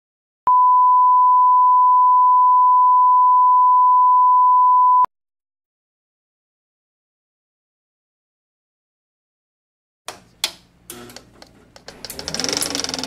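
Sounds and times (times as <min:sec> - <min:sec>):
steady test tone beep: 0:00.5 - 0:05.1.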